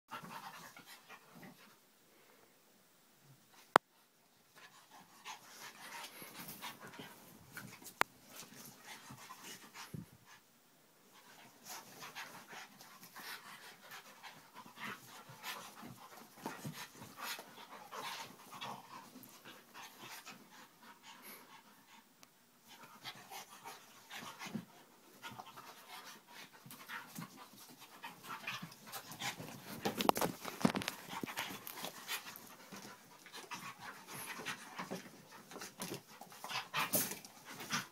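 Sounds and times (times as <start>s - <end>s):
dogs panting and snuffling: 4.6s - 10.4s, 11.1s - 37.9s
dogs scuffling on blanket: 25.3s - 37.9s.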